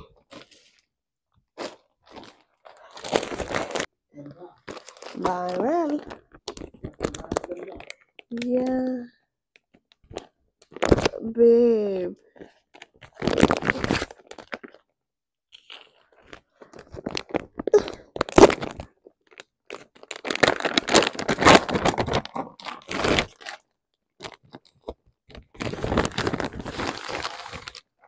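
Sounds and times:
packaging rustling and crinkling: 0:01.6 - 0:03.9, 0:04.6 - 0:08.8, 0:09.6 - 0:11.2, 0:12.3 - 0:14.8, 0:15.5 - 0:28.0
packaging tearing: 0:01.6 - 0:03.9, 0:10.1 - 0:11.2, 0:12.8 - 0:14.8, 0:15.5 - 0:23.6, 0:25.3 - 0:27.9.

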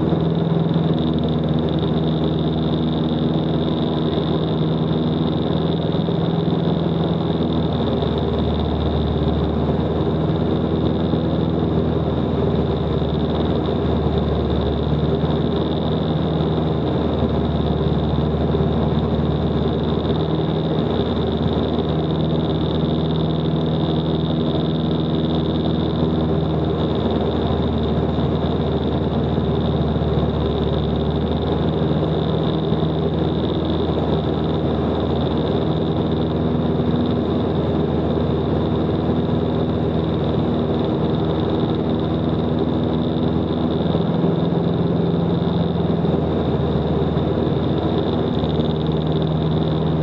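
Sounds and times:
light aircraft engine droning: 0:00.0 - 0:50.0.

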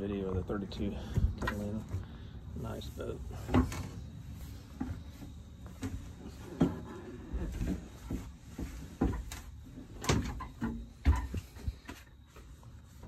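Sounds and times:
dull knocks and thumps: 0:00.0 - 0:02.3, 0:03.4 - 0:13.0.

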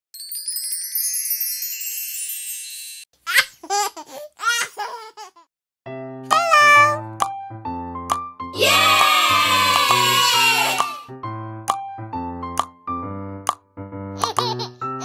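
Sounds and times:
cheerful children's music: 0:00.2 - 0:03.1, 0:05.9 - 0:15.0
high twinkling chime: 0:00.2 - 0:03.1
baby laughing: 0:03.2 - 0:05.5, 0:14.2 - 0:15.0.

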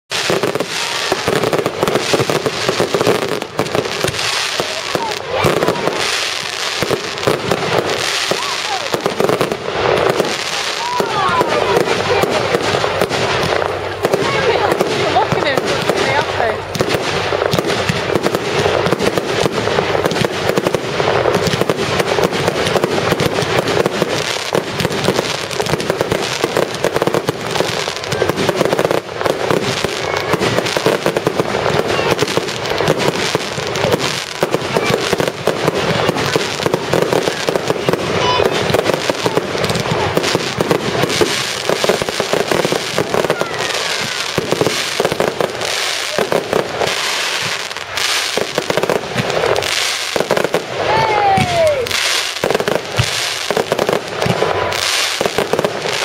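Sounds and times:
fireworks bangs: 0:00.1 - 0:56.0.

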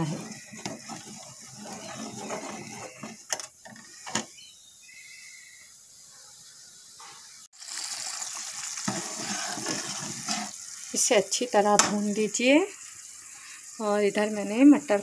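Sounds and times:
metal ladle scraping a pan: 0:00.0 - 0:04.2, 0:08.8 - 0:10.6
faint sizzle: 0:00.0 - 0:15.0.

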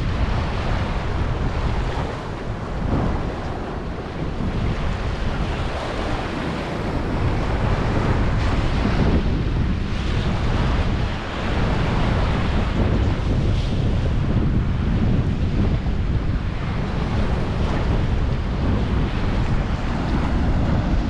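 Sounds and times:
small waves washing onto beach: 0:00.0 - 0:21.0
wind buffeting microphone: 0:00.0 - 0:21.0.

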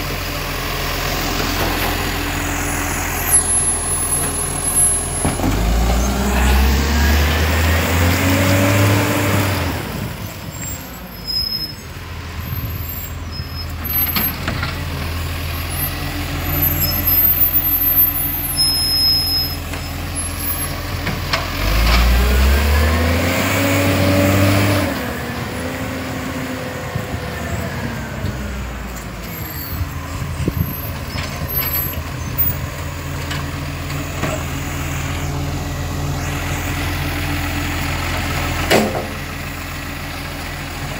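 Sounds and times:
garbage truck diesel engine revving: 0:00.0 - 0:40.9.

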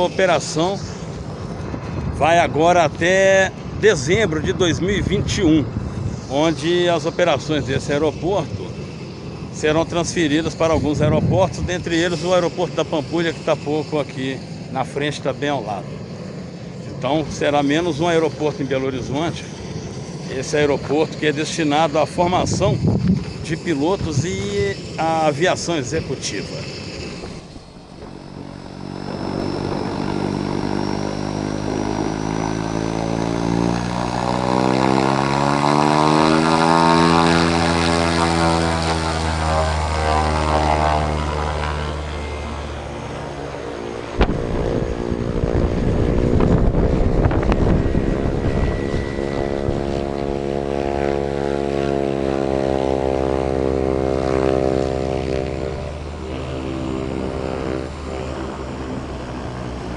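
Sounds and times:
rushing air: 0:00.0 - 0:12.8, 0:18.3 - 0:51.8
propeller plane engine drone: 0:00.0 - 0:59.9.

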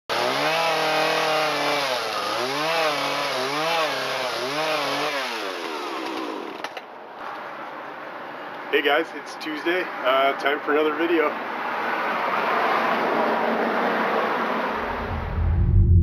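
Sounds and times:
chainsaw cutting log: 0:00.1 - 0:06.8.

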